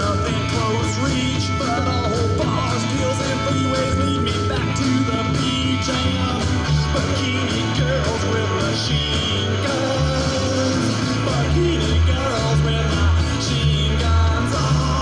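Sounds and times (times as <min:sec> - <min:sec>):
electric bass line: 0:00.0 - 0:15.0
rock and roll song: 0:00.0 - 0:15.0.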